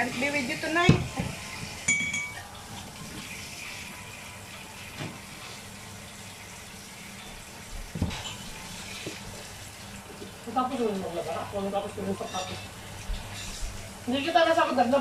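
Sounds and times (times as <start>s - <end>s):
utensil clinking on plate: 1.9s - 2.4s.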